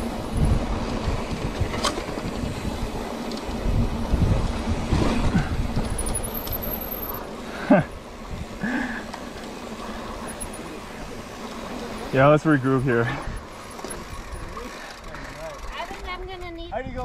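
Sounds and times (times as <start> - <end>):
wind on microphone: 0.0 - 6.7
bike tyres rolling on trail: 0.0 - 17.0
chain and frame rattle: 5.8 - 7.2, 12.8 - 16.0.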